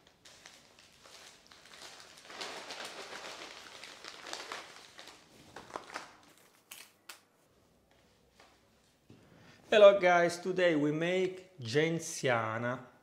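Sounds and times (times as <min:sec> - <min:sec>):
paper and plastic crinkling: 0:00.0 - 0:07.0.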